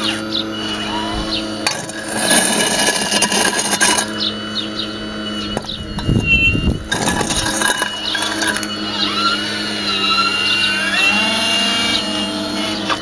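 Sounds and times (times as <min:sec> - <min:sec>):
hydraulic pump running: 0:00.0 - 0:13.0
bucket scraping concrete rubble: 0:00.8 - 0:04.3, 0:05.5 - 0:08.8
rubble crunch: 0:00.9 - 0:04.3, 0:05.4 - 0:08.8.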